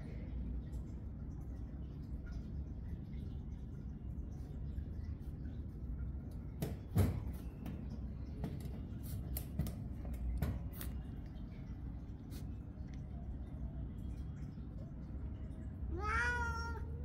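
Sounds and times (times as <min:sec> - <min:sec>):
low steady rumble: 0:07.5 - 0:17.0.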